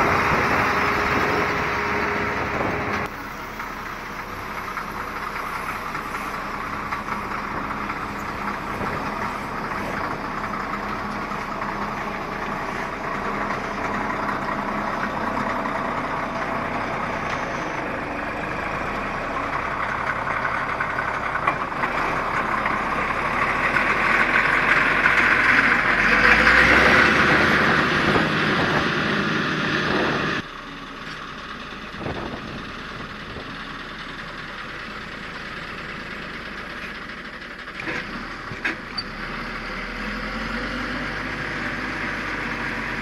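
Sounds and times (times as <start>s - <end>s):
gravel rolling and scraping: 0.0s - 29.0s
diesel engine under load: 0.0s - 43.0s.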